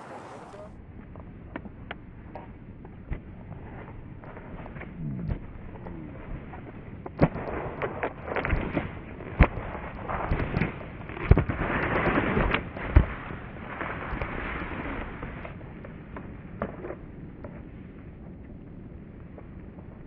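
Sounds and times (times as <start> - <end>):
skis scraping over snow: 0.0 - 0.7, 3.5 - 15.9
sharp thumps: 4.7 - 13.2.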